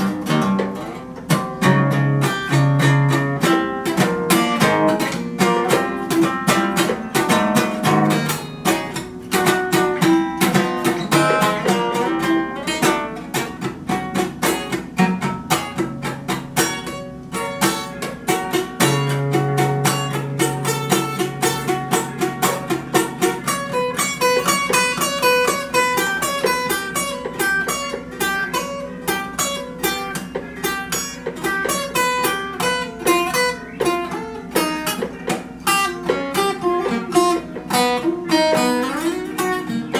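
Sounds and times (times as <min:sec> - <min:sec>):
acoustic guitar strumming: 0:00.0 - 0:39.9.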